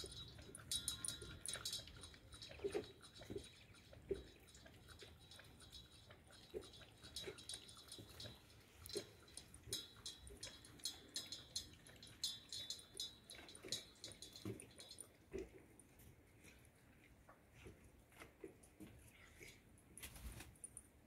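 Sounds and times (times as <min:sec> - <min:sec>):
clicks on metal bowl: 0:00.0 - 0:15.0
dog chewing and crunching: 0:00.0 - 0:19.6.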